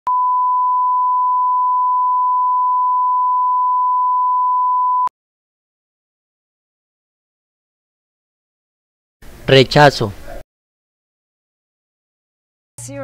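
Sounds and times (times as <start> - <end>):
sine test tone: 0.1 - 5.1.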